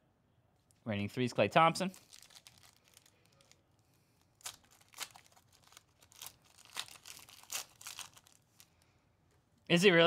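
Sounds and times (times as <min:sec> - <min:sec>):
foil wrapper crinkling and tearing: 0:01.9 - 0:08.8.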